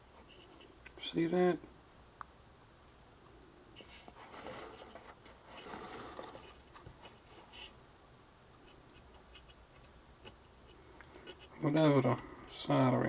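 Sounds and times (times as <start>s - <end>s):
soft rustling: 3.7s - 7.8s.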